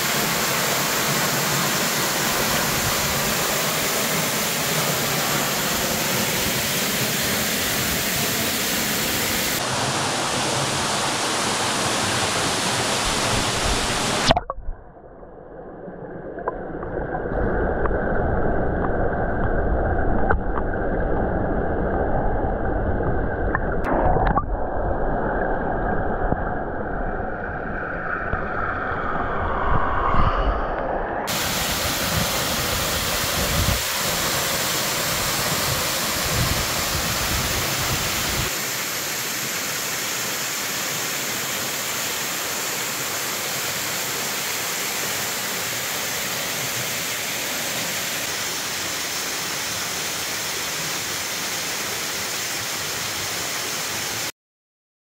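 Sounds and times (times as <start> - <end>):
waterfall rushing: 0.0 - 14.4, 31.2 - 54.3.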